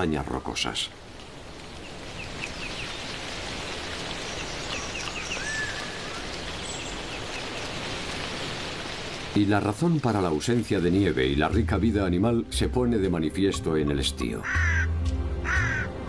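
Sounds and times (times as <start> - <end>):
wind in trees hiss: 0.0 - 12.3.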